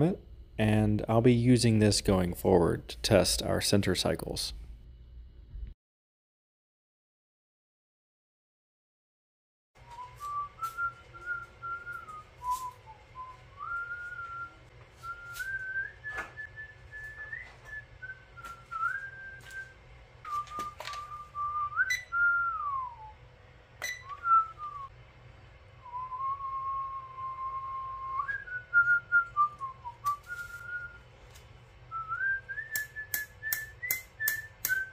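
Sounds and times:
person whistling a tune: 0:09.8 - 0:19.7, 0:20.3 - 0:23.1, 0:23.8 - 0:24.9, 0:25.8 - 0:31.0, 0:31.9 - 0:34.9.

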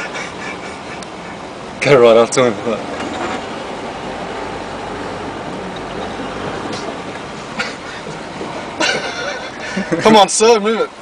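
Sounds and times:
engine and tyre noise: 0:00.0 - 0:11.0.

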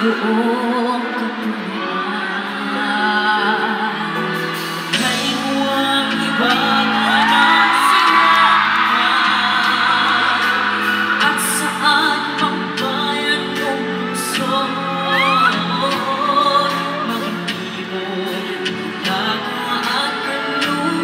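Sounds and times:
amplified backing music: 0:00.0 - 0:21.0
boys singing: 0:04.9 - 0:21.0
crowd whooping: 0:06.2 - 0:13.5, 0:14.9 - 0:17.3.

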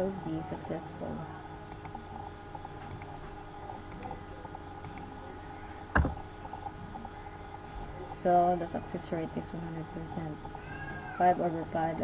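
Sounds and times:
steady hum: 0:00.0 - 0:12.0
computer mouse clicks: 0:01.7 - 0:02.0, 0:02.8 - 0:03.2, 0:03.9 - 0:04.1, 0:04.8 - 0:05.1
sharp knock: 0:06.0 - 0:06.2.

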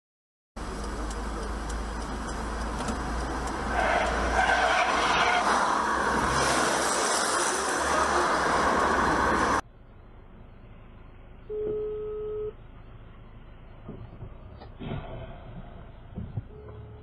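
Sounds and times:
cars driving past: 0:00.6 - 0:09.6.

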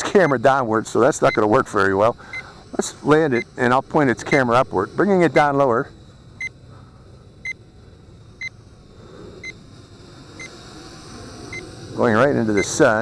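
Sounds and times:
short high-pitched electronic beeps: 0:01.2 - 0:02.5, 0:04.2 - 0:04.6.

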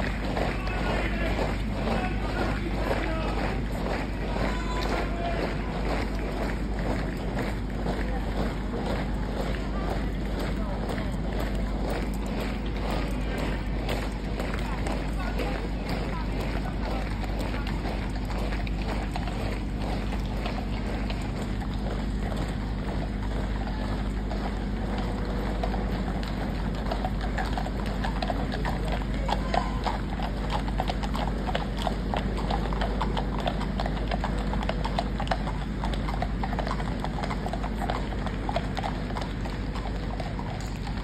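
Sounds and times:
horses' hooves: 0:00.0 - 0:41.0
marching boots on tarmac: 0:00.0 - 0:41.0.

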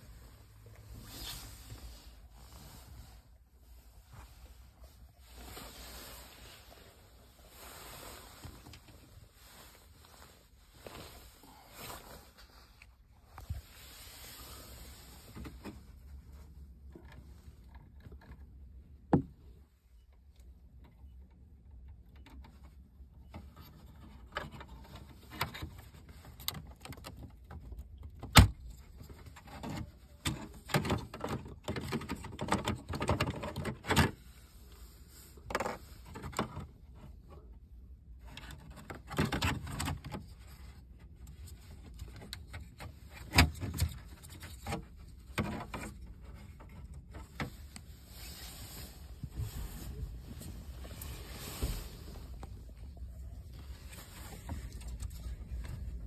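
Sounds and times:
plastic and wire scraping: 0:29.0 - 0:37.6, 0:38.2 - 0:56.0.

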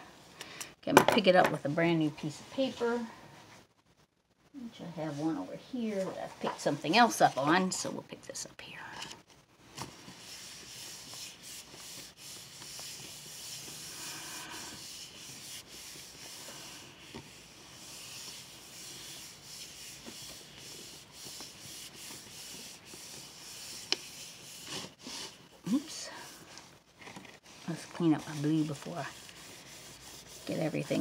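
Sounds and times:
hands rubbing paper: 0:09.7 - 0:31.0.

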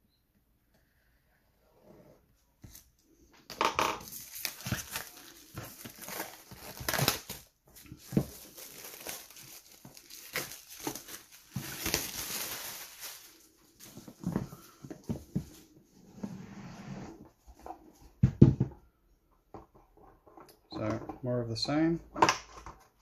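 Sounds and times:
plastic wrap crinkling and tearing: 0:04.0 - 0:14.3.

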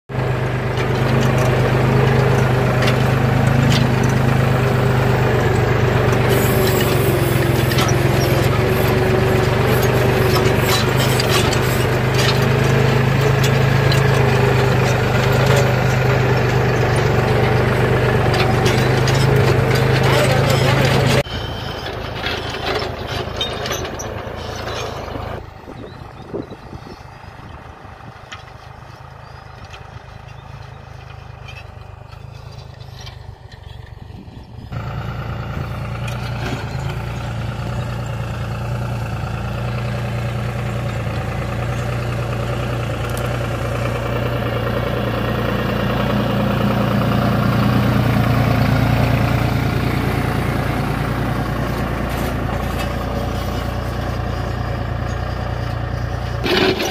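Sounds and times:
tractor diesel engine under load: 0:00.1 - 0:56.9.

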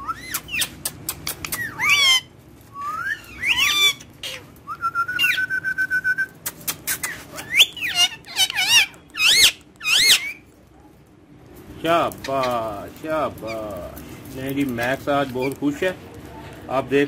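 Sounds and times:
parakeet whistling and calling: 0:00.0 - 0:00.8, 0:01.5 - 0:06.2, 0:07.0 - 0:10.4.

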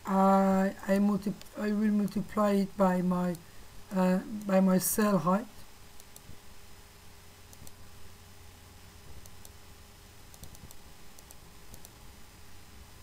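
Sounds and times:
low steady hum: 0:00.0 - 0:13.0
computer mouse clicks: 0:06.0 - 0:06.4, 0:07.5 - 0:07.8, 0:09.1 - 0:09.6, 0:10.3 - 0:12.0.

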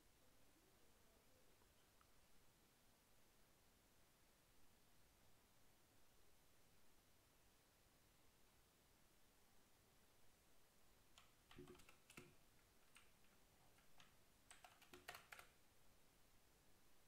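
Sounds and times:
computer keyboard typing: 0:11.2 - 0:15.6.

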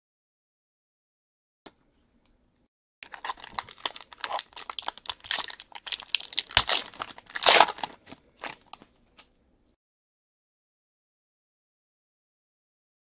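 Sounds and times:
wrapper crinkling and tearing: 0:03.0 - 0:08.9.

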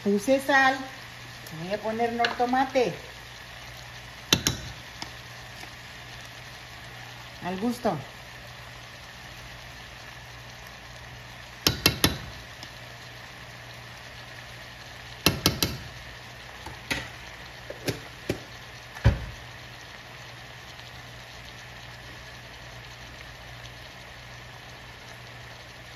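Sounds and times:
faint sizzle from pan: 0:00.0 - 0:25.9
metal spoon knocking on pan: 0:04.3 - 0:04.8, 0:11.6 - 0:12.3, 0:15.2 - 0:15.9.

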